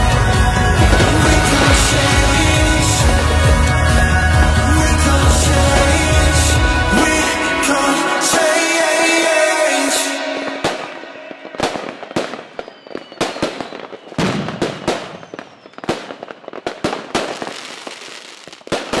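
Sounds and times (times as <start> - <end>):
fireworks bangs and pops: 0.7 - 4.2, 10.5 - 19.0
fireworks crackle: 0.7 - 4.2, 5.3 - 19.0
faint falling whistles: 11.5 - 16.6.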